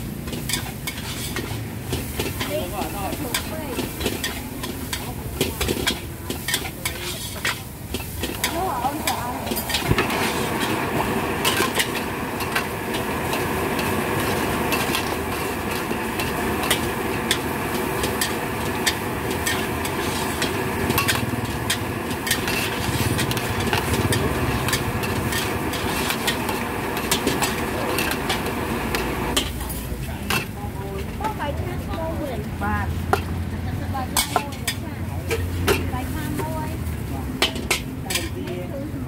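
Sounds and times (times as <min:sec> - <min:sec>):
sauce sizzling: 0:00.0 - 0:29.5
gas burner rushing: 0:00.0 - 0:31.4
metal spatula scraping wok: 0:00.1 - 0:32.0, 0:34.0 - 0:36.4.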